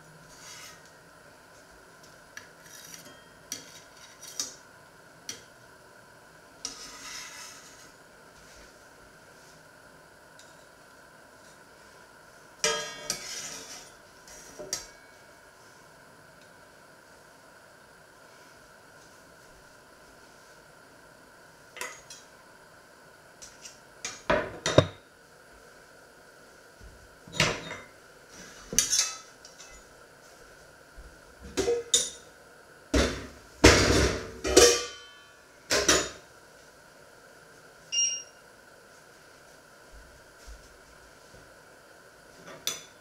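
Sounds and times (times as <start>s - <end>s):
ringing metal clang: 34.5s - 35.3s.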